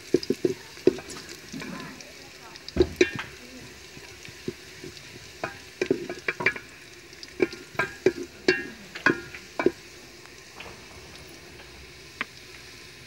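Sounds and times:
wooden spoon knocking on metal pot: 0.0 - 1.8, 2.7 - 6.8, 7.4 - 9.8
onions sizzling: 0.0 - 13.0.

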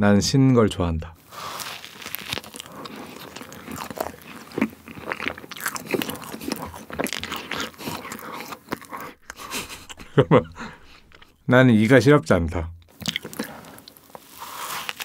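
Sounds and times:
biting into soft sandwich: 1.2 - 10.2, 13.0 - 15.0
wet chewing: 1.2 - 11.4, 12.8 - 15.0.

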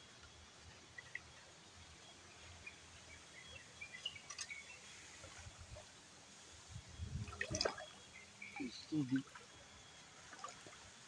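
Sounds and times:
faint outdoor ambience: 0.0 - 11.0
faint bird chirps: 6.7 - 10.1.

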